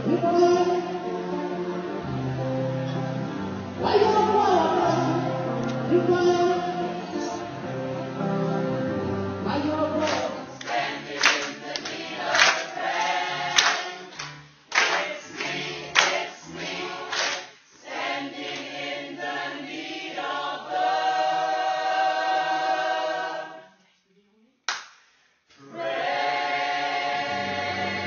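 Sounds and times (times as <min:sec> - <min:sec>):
group singing a cappella: 0:03.8 - 0:23.8, 0:25.6 - 0:28.0.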